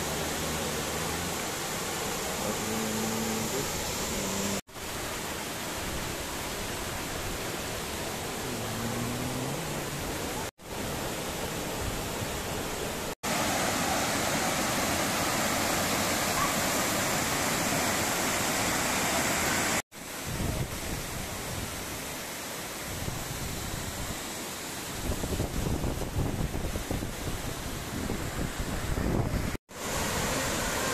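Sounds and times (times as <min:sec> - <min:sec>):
rocky stream flowing: 0:00.0 - 0:19.8
waterfall rushing: 0:00.0 - 0:21.0, 0:26.9 - 0:30.9.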